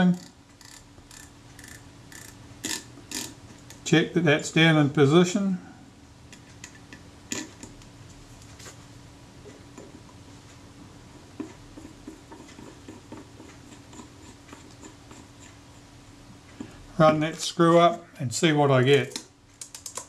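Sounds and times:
faint steady hum: 0.0 - 20.0
small metal clicks and ticks: 19.0 - 20.0.

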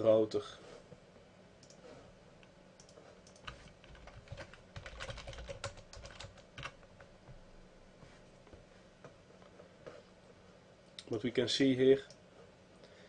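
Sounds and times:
typing on computer keyboard: 2.8 - 6.9.

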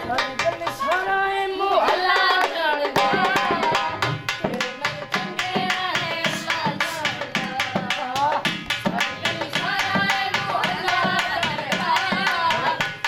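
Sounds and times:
dhol drumming: 0.0 - 13.0.

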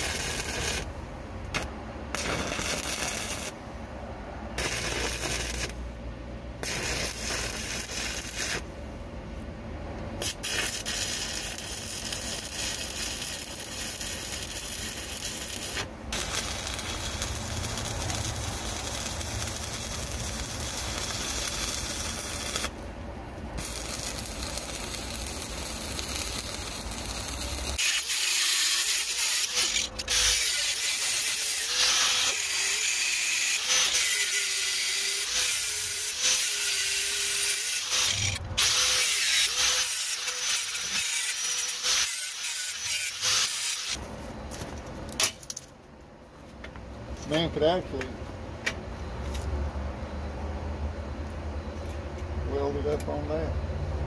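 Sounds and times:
power tool cutting steel: 0.0 - 0.9, 1.6 - 3.6, 4.6 - 5.8, 6.6 - 8.6, 10.2 - 22.7, 23.6 - 44.0
faint whine: 44.0 - 54.0.

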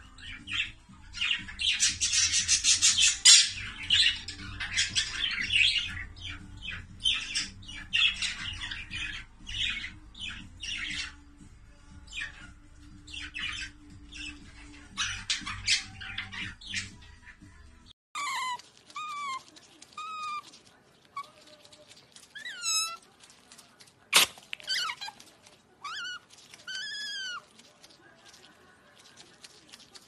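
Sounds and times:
otter chirping squeaks: 0.0 - 11.1, 18.2 - 30.0
budgerigar chicks squawking: 0.2 - 11.1, 12.1 - 17.4, 18.2 - 23.2, 24.2 - 27.6.

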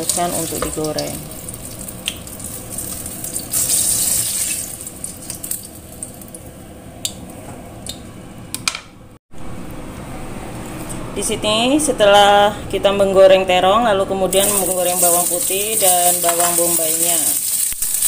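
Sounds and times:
food sizzling in hot oil: 0.0 - 6.4, 14.3 - 18.0.

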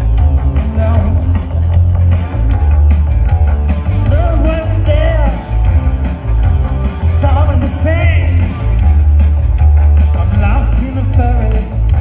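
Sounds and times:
heavy bass and drum beat: 0.0 - 12.0
live rock band playing: 0.0 - 12.0.

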